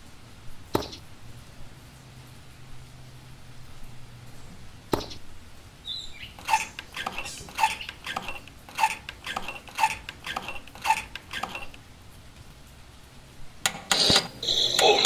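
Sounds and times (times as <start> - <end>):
hand pump handle clicking: 6.4 - 11.8.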